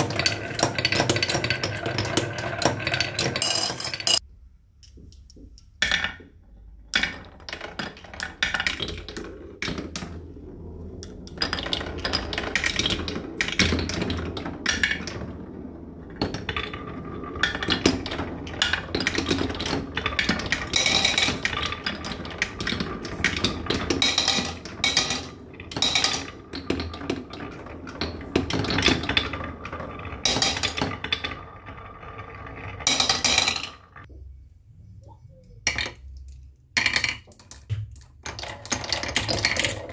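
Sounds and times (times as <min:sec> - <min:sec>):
marbles rolling on wooden tracks: 0:00.0 - 0:04.2, 0:04.9 - 0:34.1, 0:35.3 - 0:39.9
marbles clicking on wood: 0:11.0 - 0:34.1, 0:35.4 - 0:39.9.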